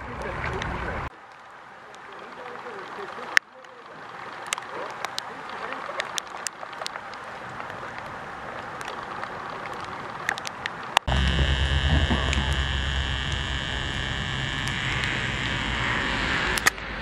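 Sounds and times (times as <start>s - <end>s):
soft hiss with light ticks: 0.6s - 8.2s
jet turbines humming and whining: 11.0s - 17.0s.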